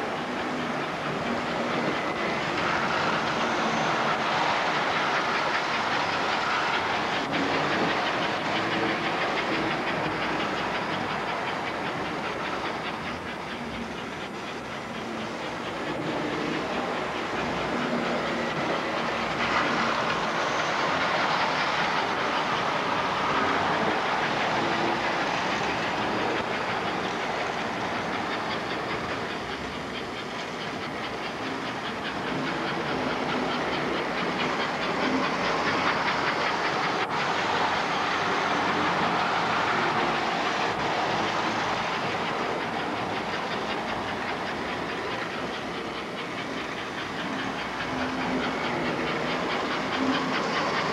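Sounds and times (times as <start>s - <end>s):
model train motors whirring: 0.0s - 50.9s
wheels clicking over rail joints: 0.0s - 50.9s.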